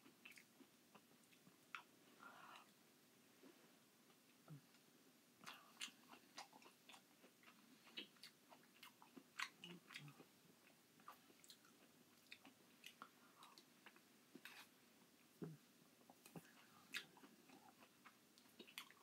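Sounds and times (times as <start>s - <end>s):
wet chewing mouth sounds: 5.4s - 14.7s, 15.4s - 19.0s.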